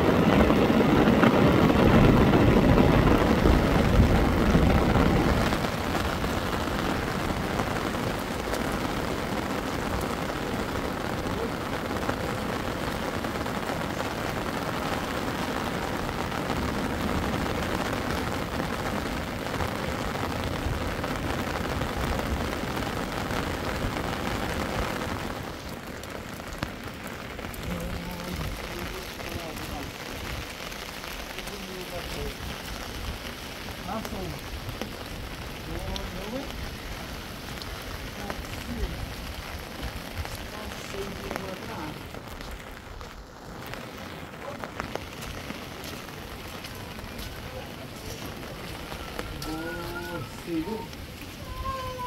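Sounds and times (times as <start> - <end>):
floodwater rushing down gully: 0.0 - 52.0
steady rain falling: 0.0 - 52.0.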